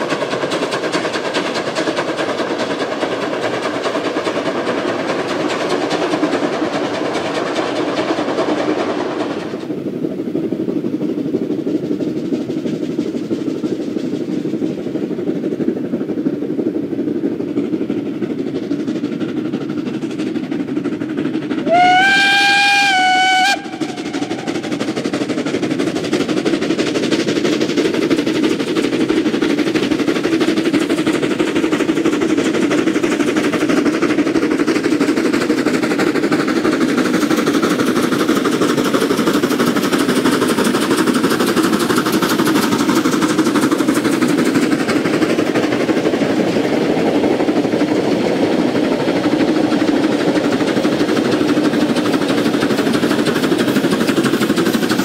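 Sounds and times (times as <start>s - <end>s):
locomotive exhaust chuffing: 0.0s - 55.0s
steam locomotive whistle: 21.6s - 24.6s.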